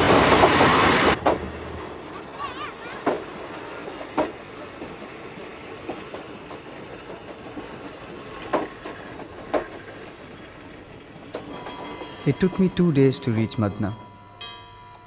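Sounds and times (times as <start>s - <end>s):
train coaches rumbling past: 0.0s - 15.0s
sharp clanks: 8.4s - 15.0s.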